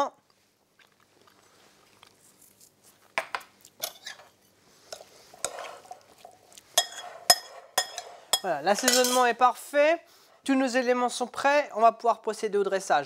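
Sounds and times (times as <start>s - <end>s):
spoon scraping in bowl: 3.8s - 9.3s
spoon clinking on glass: 6.8s - 9.3s.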